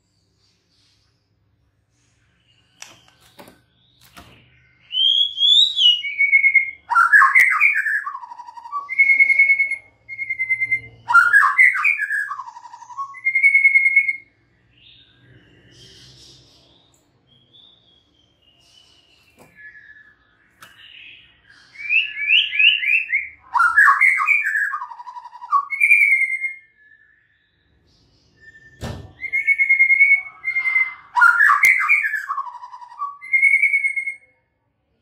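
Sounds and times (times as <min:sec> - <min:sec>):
bird singing whistled trills: 0:03.8 - 0:16.6, 0:17.3 - 0:34.3
sharp thump: 0:28.8 - 0:29.2.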